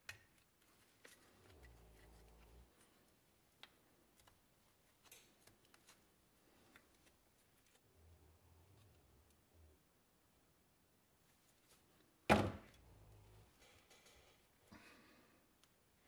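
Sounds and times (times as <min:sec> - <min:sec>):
faint clicks and taps: 0:00.0 - 0:07.8.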